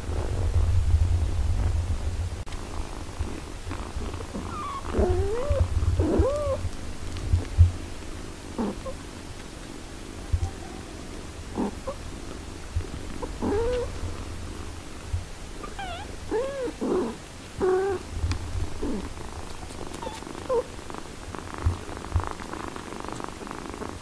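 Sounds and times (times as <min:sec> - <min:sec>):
cat purring: 0:00.0 - 0:24.0
kittens mewing: 0:04.3 - 0:06.7, 0:13.2 - 0:13.9, 0:15.6 - 0:18.1, 0:18.8 - 0:20.8.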